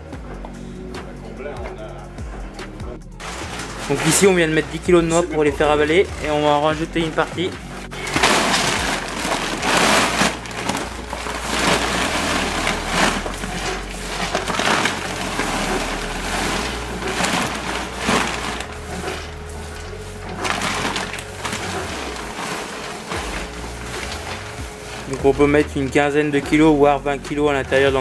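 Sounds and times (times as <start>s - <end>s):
faint machine hum: 0.0s - 28.0s
nuts rattling into steel hopper: 3.2s - 28.0s.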